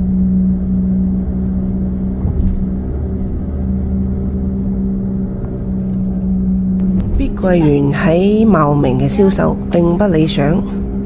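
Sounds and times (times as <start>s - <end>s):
car engine and tyre rumble: 0.0s - 11.0s
constant hum: 0.0s - 11.0s.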